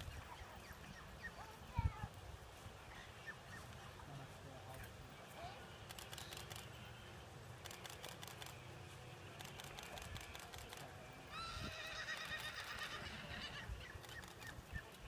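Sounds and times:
horse whinnying: 11.3 - 13.9.

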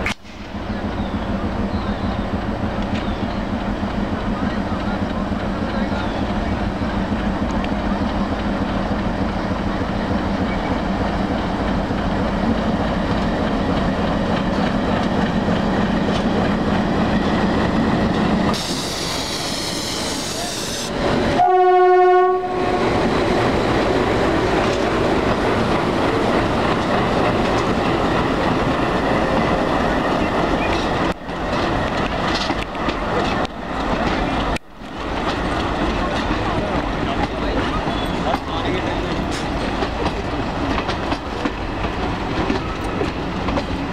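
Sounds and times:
diesel locomotive running: 0.0 - 43.9
wheels clicking over rail joints: 2.6 - 18.6, 23.1 - 43.9
train horn blast: 21.4 - 23.0.

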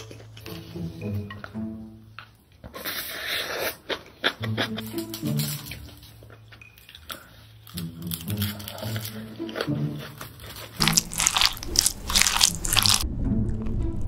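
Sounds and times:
background music: 0.0 - 2.4, 4.2 - 14.0
chewing and biting: 2.6 - 13.0.

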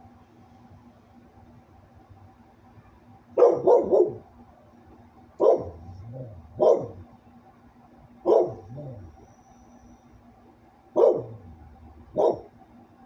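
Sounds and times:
dog barking: 3.4 - 4.3, 5.4 - 7.0, 8.2 - 9.1, 11.0 - 12.5.

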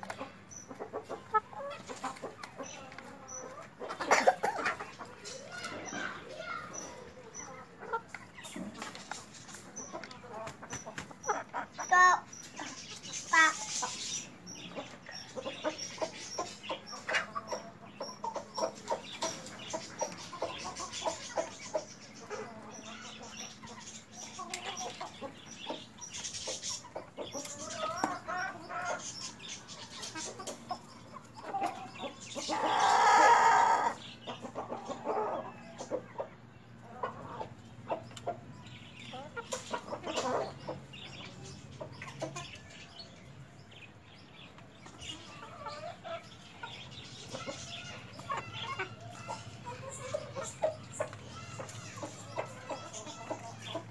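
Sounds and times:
chickens clucking: 0.0 - 53.9
chicken drawn-out call: 31.4 - 34.0.

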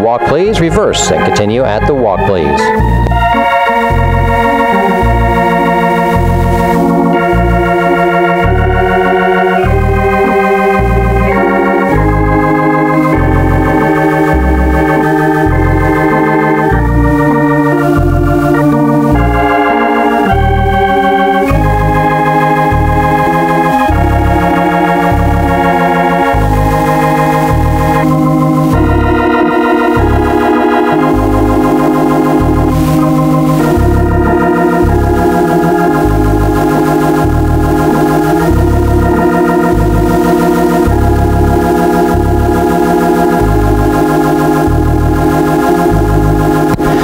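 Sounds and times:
organ music: 0.0 - 47.0.

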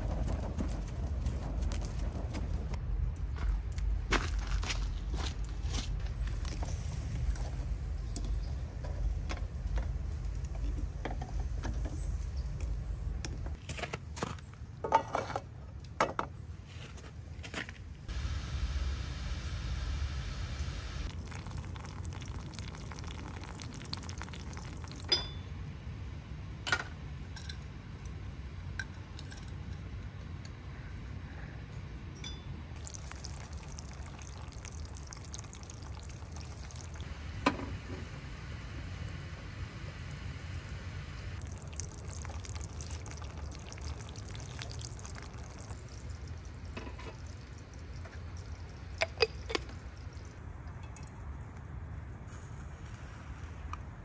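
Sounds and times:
low steady rumble: 0.0 - 13.6, 17.4 - 54.0
hot water pouring into teapot: 21.0 - 25.2, 32.8 - 37.1, 40.2 - 51.2
light clink: 25.1 - 25.5, 32.1 - 32.5.

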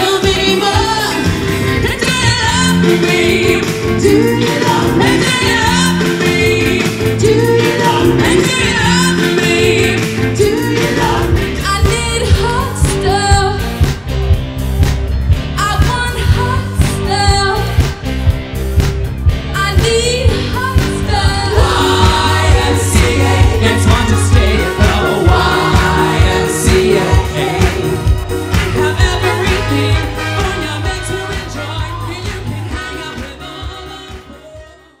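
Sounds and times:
upbeat soul song: 0.0 - 35.0.

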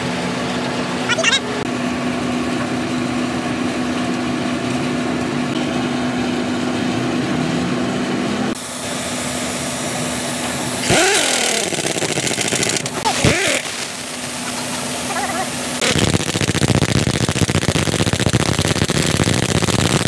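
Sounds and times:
machine drone with held tone: 0.0 - 20.0
pneumatic impact wrench spinning: 8.8 - 20.0.

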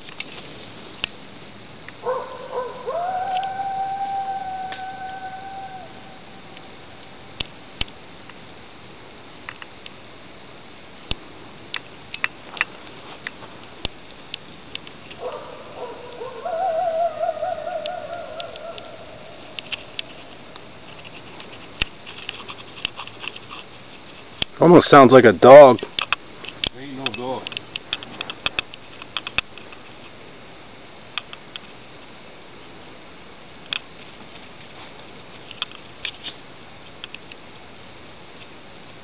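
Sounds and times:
crickets chirping: 0.0 - 39.0
coyote howling: 2.0 - 6.7, 15.2 - 20.8
sharp clicks: 17.8 - 23.4.

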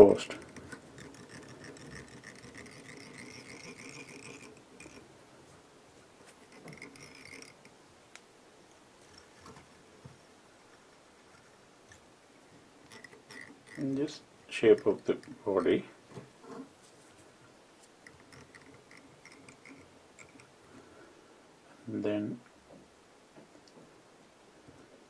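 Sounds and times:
scratchy rustling of yarn: 12.9 - 20.5.

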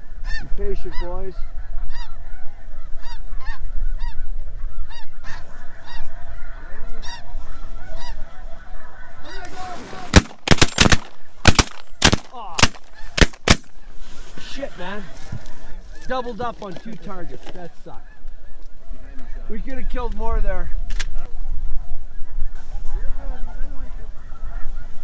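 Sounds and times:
geese honking: 0.0 - 25.0
shotgun blasts: 10.0 - 13.7.

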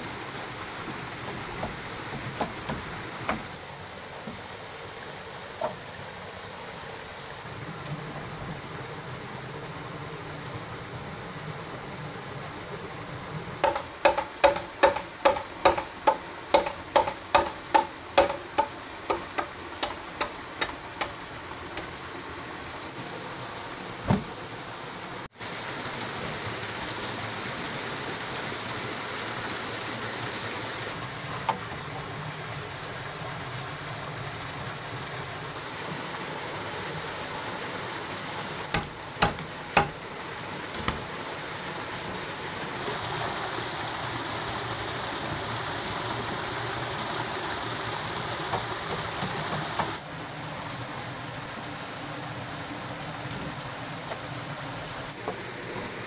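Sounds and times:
forest stream rushing: 0.0 - 56.0
hammer striking bamboo: 13.6 - 21.2, 38.7 - 40.0.

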